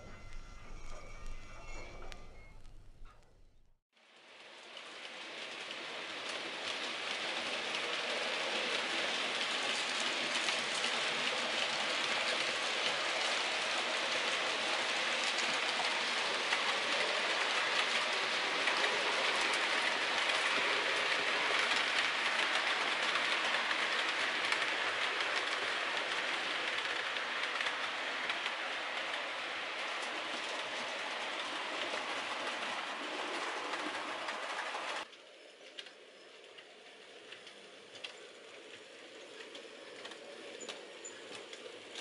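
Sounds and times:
rail-joint clicks: 0:00.0 - 0:03.4, 0:12.2 - 0:42.0
model trains rumbling on rails: 0:04.0 - 0:42.0.

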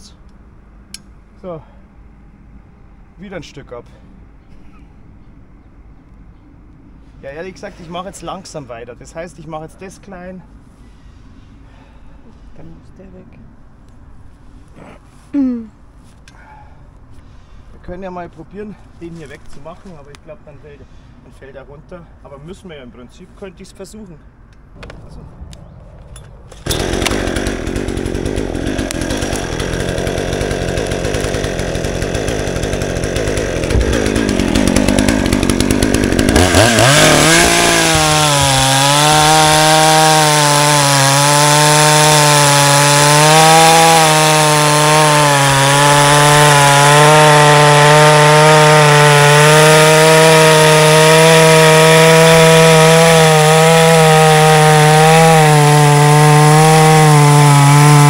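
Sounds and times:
chainsaw cutting wood: 0:26.6 - 0:58.0.

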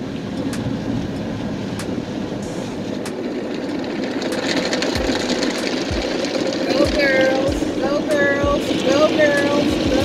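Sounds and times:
car wash machinery rumbling: 0:00.0 - 0:10.0
light ticks: 0:00.4 - 0:02.0.

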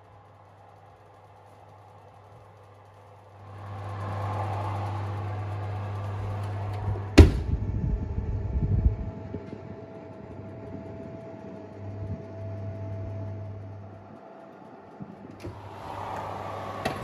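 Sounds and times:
faint steady whine: 0:00.0 - 0:17.0
oven humming: 0:00.0 - 0:17.0
oven door banging shut: 0:07.2 - 0:07.6.

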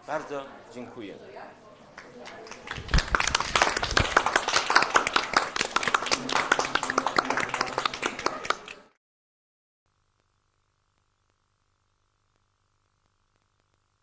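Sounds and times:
people clapping: 0:02.0 - 0:09.0.

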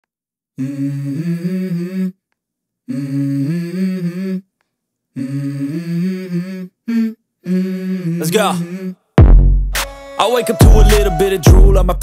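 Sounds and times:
wordless hummed vocal melody: 0:00.6 - 0:02.2, 0:02.9 - 0:04.5, 0:05.2 - 0:09.0, 0:10.2 - 0:12.0.

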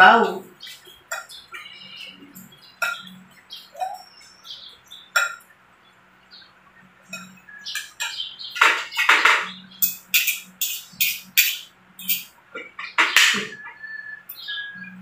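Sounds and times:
cutlery clinking and scraping on plate: 0:07.1 - 0:13.8.

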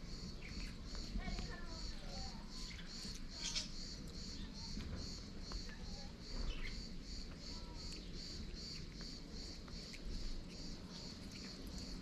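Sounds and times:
insect chirping: 0:00.0 - 0:12.0.

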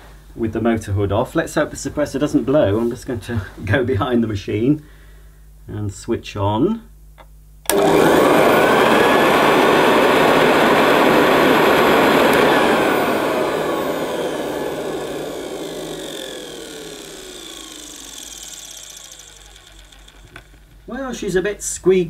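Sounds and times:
vacuum cleaner motor running: 0:07.7 - 0:21.0.

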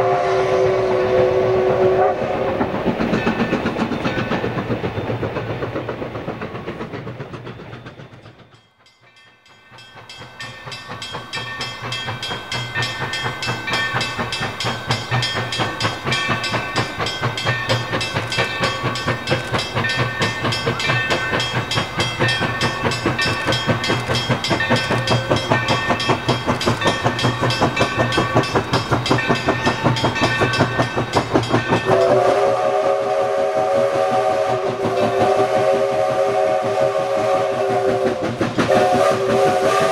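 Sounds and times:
steam whistle chord: 0:00.0 - 0:02.6, 0:31.8 - 0:39.9
steam locomotive working: 0:00.0 - 0:39.9
crossing bell ringing: 0:08.4 - 0:32.8.

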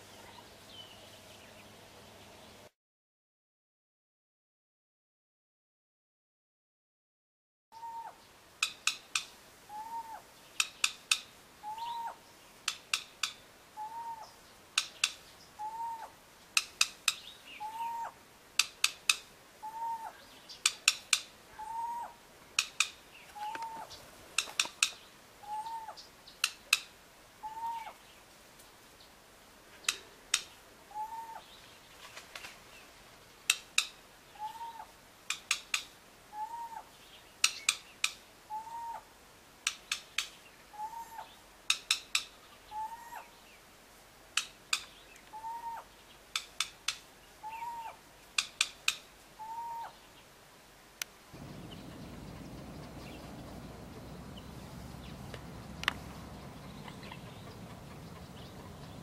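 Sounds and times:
bird bill-snapping clicks: 0:08.6 - 0:09.4, 0:10.6 - 0:11.3, 0:12.6 - 0:13.4, 0:14.8 - 0:15.2, 0:16.6 - 0:17.3, 0:18.6 - 0:19.3, 0:20.5 - 0:21.3, 0:22.6 - 0:25.0, 0:26.4 - 0:26.9, 0:29.8 - 0:30.6, 0:33.5 - 0:34.0, 0:35.3 - 0:36.0, 0:37.4 - 0:38.2, 0:39.6 - 0:40.4, 0:41.7 - 0:42.4, 0:44.3 - 0:45.4, 0:46.3 - 0:47.1, 0:48.4 - 0:49.1, 0:51.0 - 0:59.0
bird hooting note: 0:15.6 - 0:16.1, 0:51.4 - 0:58.7.

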